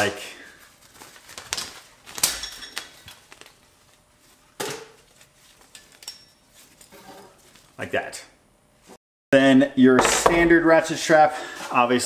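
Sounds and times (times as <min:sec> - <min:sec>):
sharp knocks: 0:10.0 - 0:10.6.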